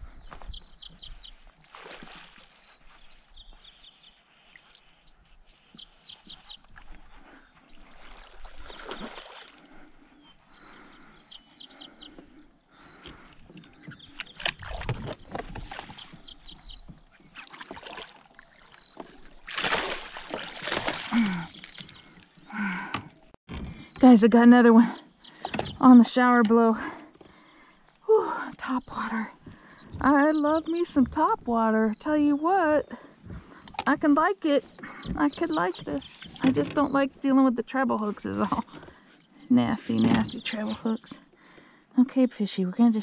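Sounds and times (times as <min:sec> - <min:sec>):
birds chirping: 0:00.0 - 0:43.0
fish splashing in water: 0:01.6 - 0:02.9, 0:07.8 - 0:09.8, 0:17.4 - 0:22.2.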